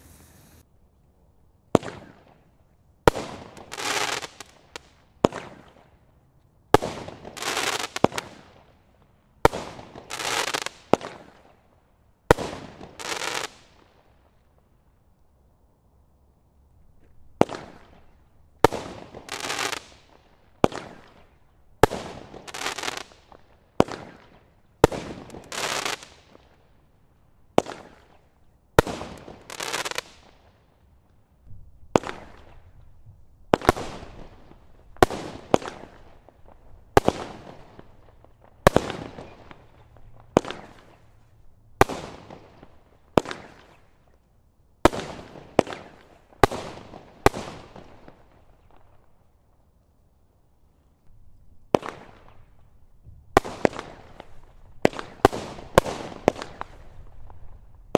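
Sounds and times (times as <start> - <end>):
firework hissing tails: 0.0 - 0.6.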